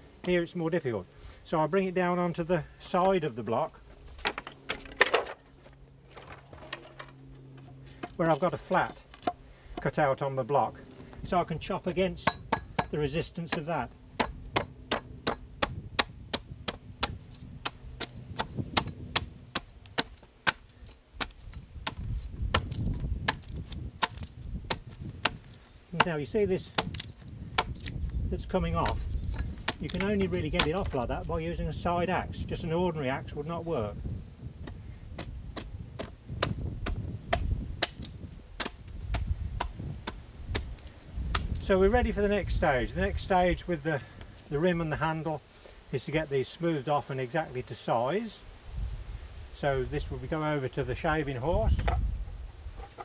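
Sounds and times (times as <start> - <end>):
axe chopping wood: 11.9 - 31.1, 34.6 - 41.6.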